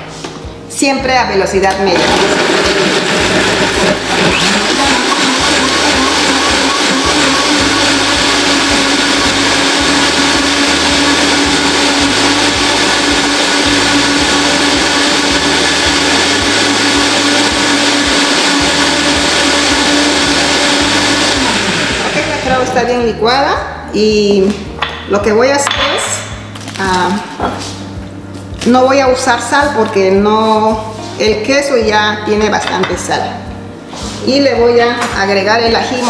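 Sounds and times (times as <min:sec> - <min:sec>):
blender running: 0:01.9 - 0:22.8.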